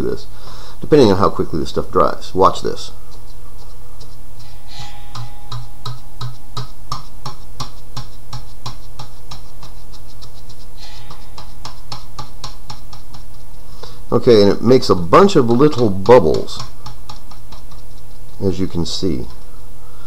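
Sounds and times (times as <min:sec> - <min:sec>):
steady low hum: 0:00.0 - 0:20.0
sponge tapping on metal grille: 0:05.1 - 0:14.0, 0:14.9 - 0:18.5.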